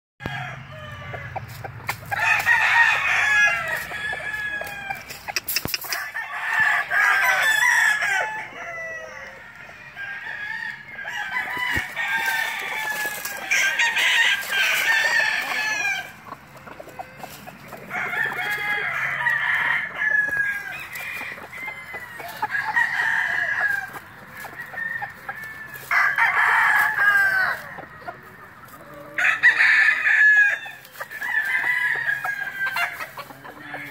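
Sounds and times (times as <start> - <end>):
rooster crowing: 0.2 - 1.4, 2.1 - 5.2, 5.9 - 16.3, 17.0 - 27.8, 29.0 - 33.9
chickens clucking: 0.2 - 33.9.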